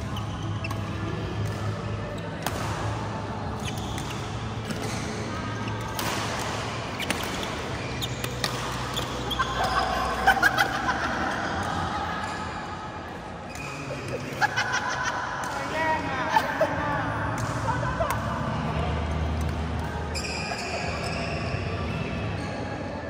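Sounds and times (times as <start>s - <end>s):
shoes squeaking on court: 0.0s - 2.2s, 3.5s - 10.2s, 20.0s - 21.8s
rackets hitting shuttlecock: 0.1s - 12.4s.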